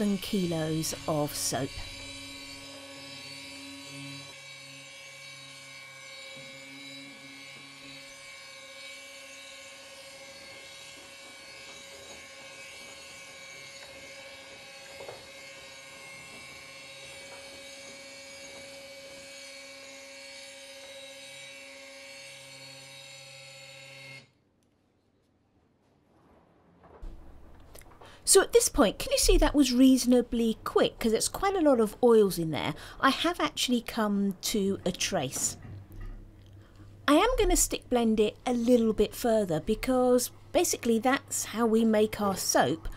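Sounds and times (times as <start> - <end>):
stick blender motor whine: 0.0 - 24.4.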